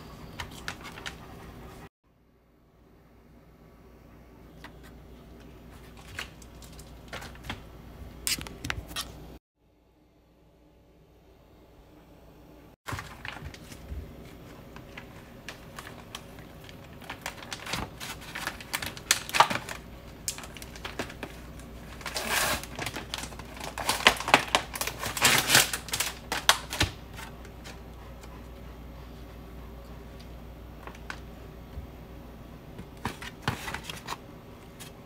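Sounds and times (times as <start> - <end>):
plastic packaging crackling: 12.9 - 27.3.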